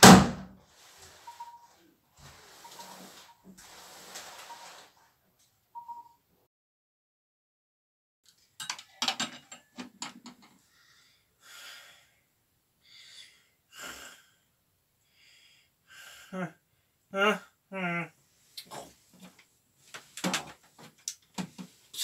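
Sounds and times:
slow heavy breaths: 10.6s - 17.1s
rustling and clicks: 18.6s - 21.8s.

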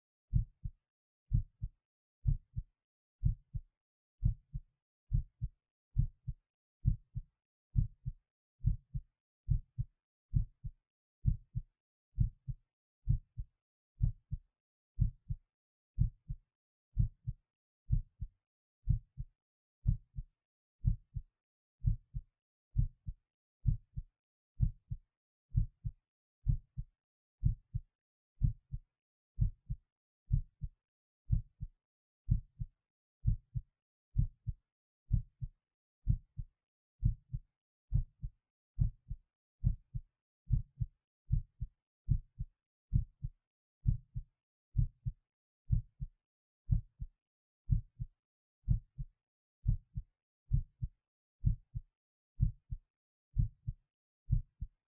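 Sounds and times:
heartbeat double thump: 45.7s - 46.1s, 47.7s - 48.1s, 50.5s - 51.6s.

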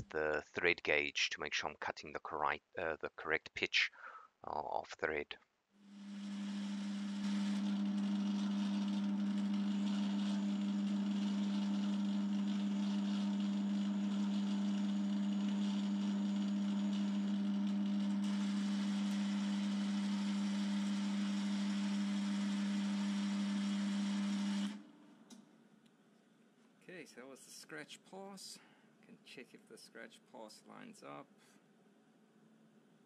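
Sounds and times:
lathe motor and gear hum: 6.0s - 24.8s.

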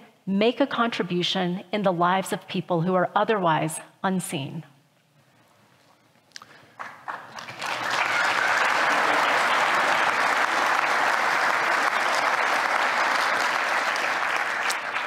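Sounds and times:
audience applauding: 6.6s - 15.0s.

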